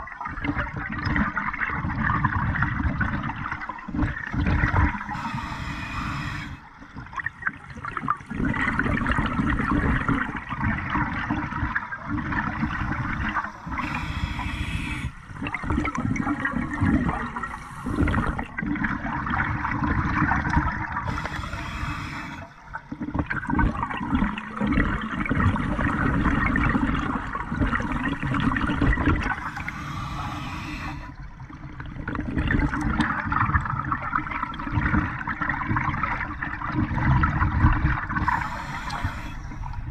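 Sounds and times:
exhaust bubbles gurgling underwater: 0.0s - 39.9s
regulator hiss on inhale: 5.2s - 6.7s, 13.8s - 15.4s, 16.7s - 18.5s, 21.0s - 22.6s, 29.3s - 31.2s, 38.2s - 39.8s.

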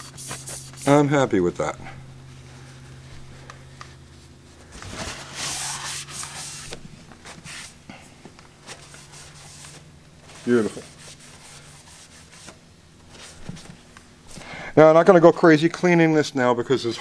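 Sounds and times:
towel rubbing inside metal bore: 0.0s - 1.1s.

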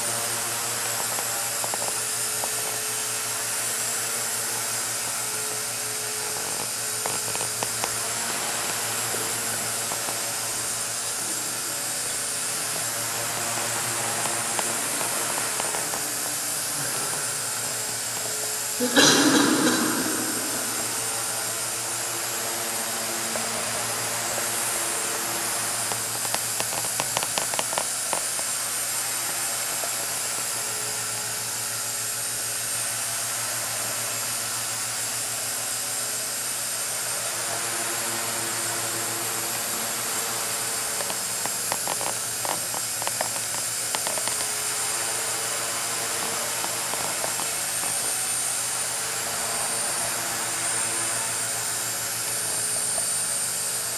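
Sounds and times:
toy helicopter rotors whining: 0.0s - 18.9s, 36.9s - 53.9s.

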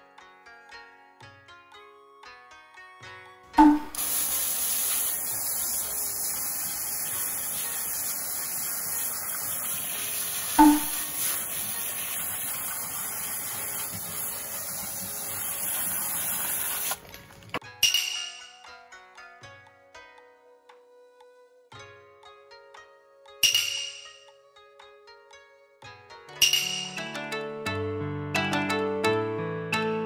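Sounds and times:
short sharp sound: 3.6s - 4.0s, 10.6s - 11.1s
hose nozzle spraying water: 3.6s - 17.6s.

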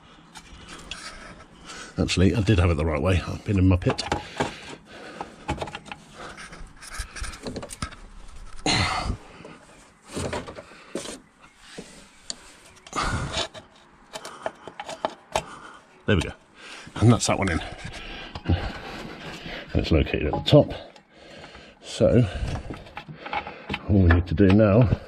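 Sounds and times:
metal clicks knocks and scrapes: 3.8s - 8.6s, 11.8s - 16.4s, 22.4s - 25.0s
person breathing hard: 4.1s - 7.4s, 14.2s - 17.0s, 17.7s - 19.7s, 20.9s - 23.8s.

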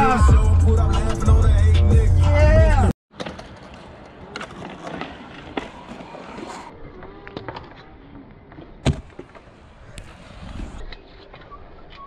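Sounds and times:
scooter wheels rolling on concrete: 3.1s - 12.0s.

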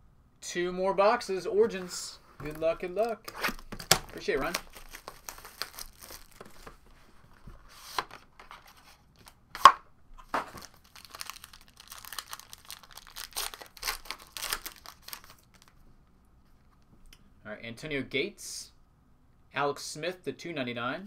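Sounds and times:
plastic wrapping crinkling and tearing: 2.4s - 6.9s, 10.4s - 15.8s.

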